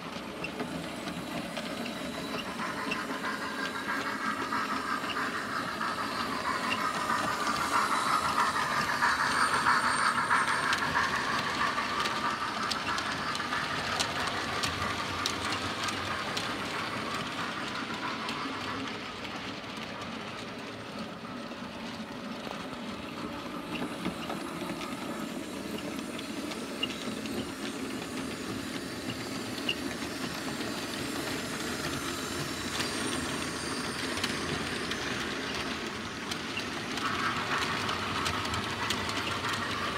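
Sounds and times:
model train motor whine: 0.0s - 39.9s
wheels clicking on track: 0.0s - 39.9s.

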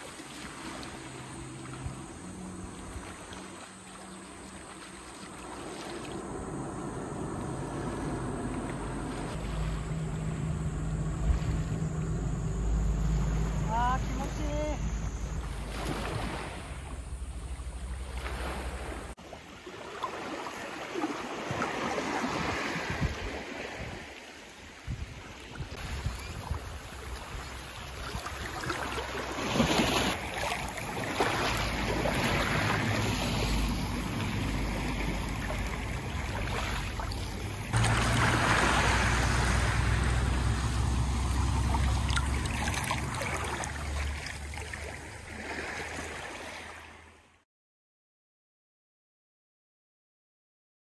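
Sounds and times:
waves washing onto shore: 0.0s - 12.1s, 12.9s - 47.1s
wind rumbling on microphone: 22.3s - 24.1s, 24.8s - 28.8s.

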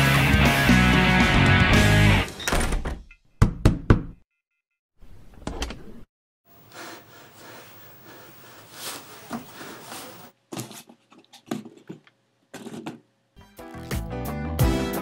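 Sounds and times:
wooden door opening: 2.3s - 3.1s.

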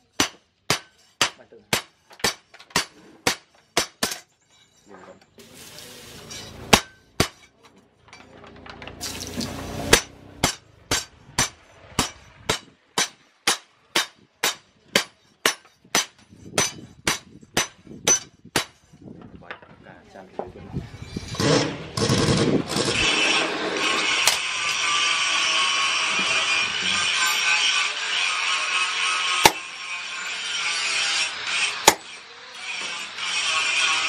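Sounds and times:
hammer striking steel on anvil: 0.1s - 4.3s, 6.2s - 7.6s, 9.9s - 18.8s, 29.3s - 30.4s, 31.2s - 32.2s.

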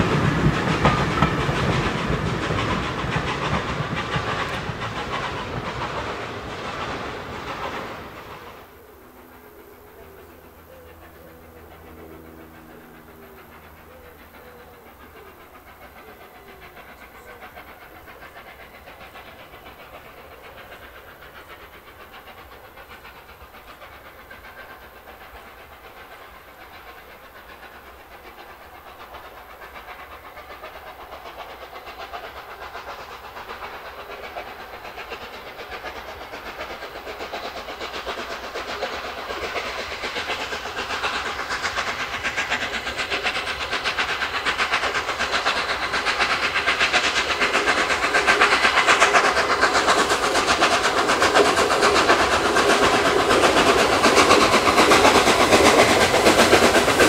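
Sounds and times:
steam locomotive exhaust beats: 0.0s - 57.0s
train rattling on rails: 0.0s - 57.0s.

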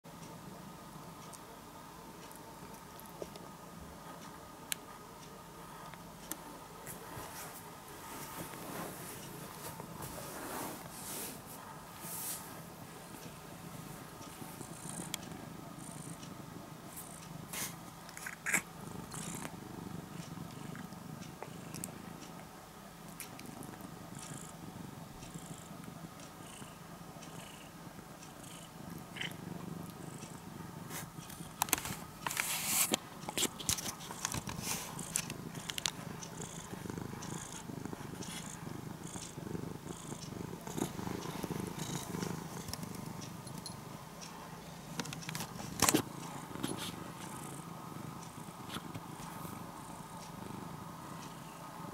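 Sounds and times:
cat purring: 2.0s - 51.9s
clicks and rustles: 31.2s - 36.0s.

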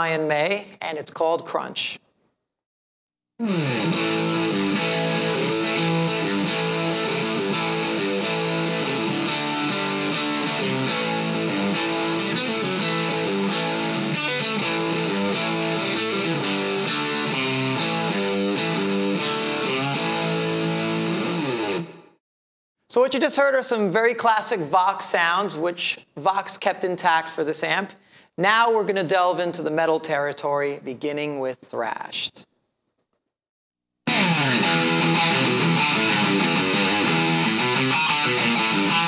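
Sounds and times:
overdriven electric guitar riff: 3.4s - 22.2s, 34.1s - 39.0s.

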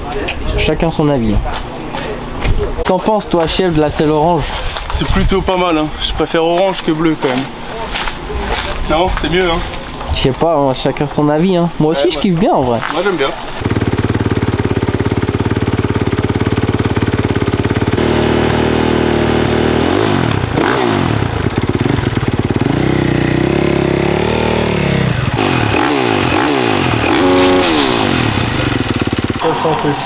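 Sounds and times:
motorbike engine idling and revving: 13.0s - 30.0s.

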